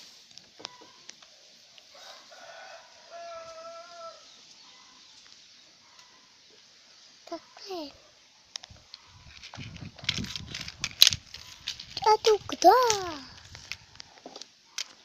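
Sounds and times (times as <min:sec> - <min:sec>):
faint rooster crowing: 0:01.8 - 0:05.1.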